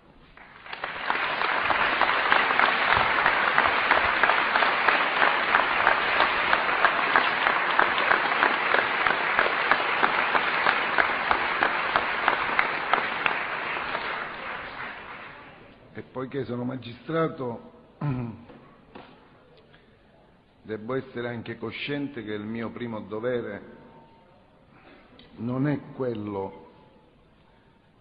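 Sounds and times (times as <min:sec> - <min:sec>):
audience applauding: 0:00.3 - 0:15.7.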